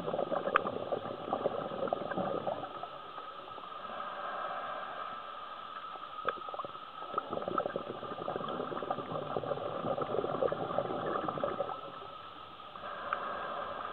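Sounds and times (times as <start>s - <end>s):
underwater bubbles crackling: 0.0s - 3.8s, 5.7s - 13.3s
steady hum: 0.0s - 13.9s.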